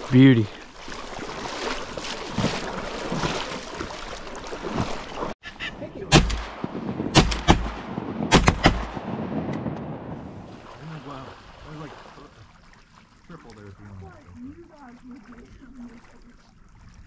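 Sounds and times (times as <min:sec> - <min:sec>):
shotgun blasts: 0:06.1 - 0:10.2.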